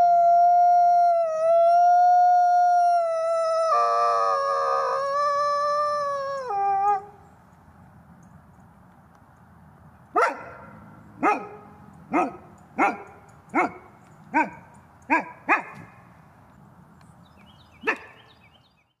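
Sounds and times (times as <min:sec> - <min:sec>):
wolf barking: 0:10.1 - 0:16.0, 0:17.8 - 0:18.3.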